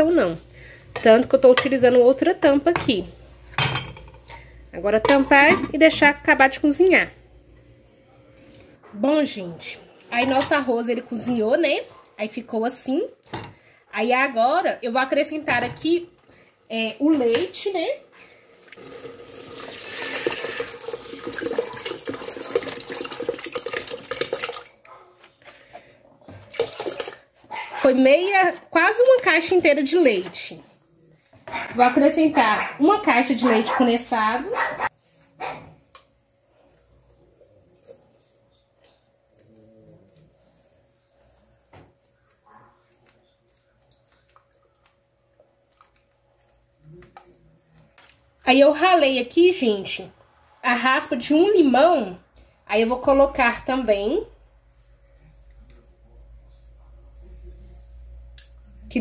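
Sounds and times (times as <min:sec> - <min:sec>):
milk pouring into pot: 0:18.5 - 0:24.8, 0:26.4 - 0:27.3.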